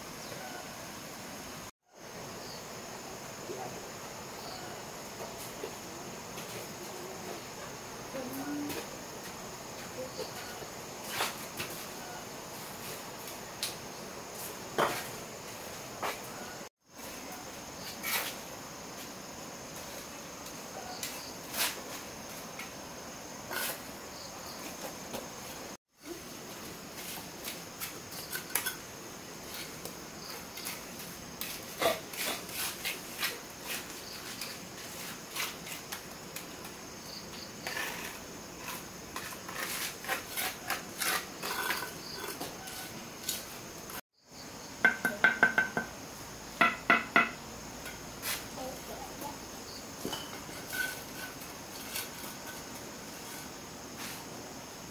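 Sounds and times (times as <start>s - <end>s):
insects chirring: 0.0s - 54.9s
hand tools tapping on brick: 44.8s - 45.9s.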